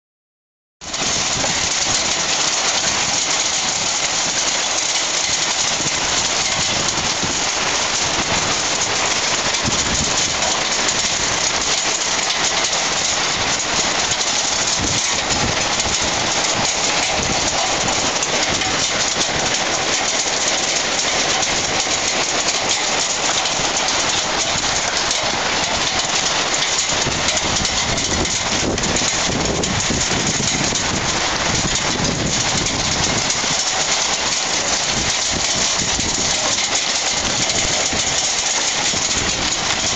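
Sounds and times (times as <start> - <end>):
hail clattering on balcony: 0.8 - 39.9.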